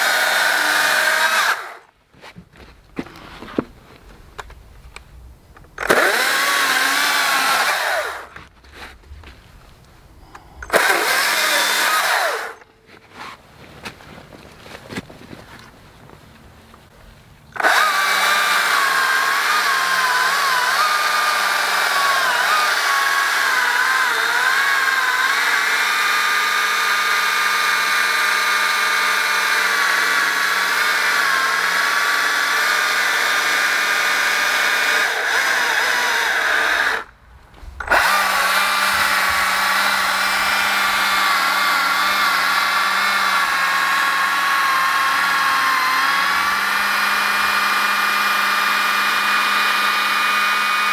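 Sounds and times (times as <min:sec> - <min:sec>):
battery chainsaw cutting log: 0:00.0 - 0:01.9, 0:05.8 - 0:08.9, 0:10.3 - 0:12.7, 0:17.5 - 0:37.1, 0:37.7 - 0:50.9.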